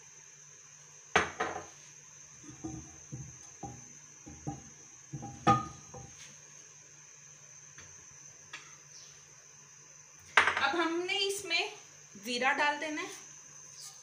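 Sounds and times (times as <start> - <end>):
frying pan knocking on stove grate: 2.5 - 6.2.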